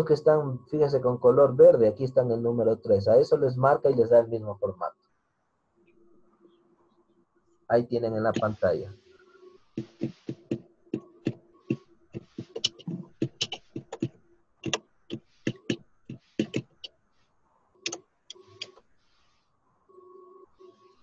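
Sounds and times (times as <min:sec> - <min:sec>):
faint steady hum: 0:00.0 - 0:21.0
sharp clicks and taps: 0:09.8 - 0:16.9.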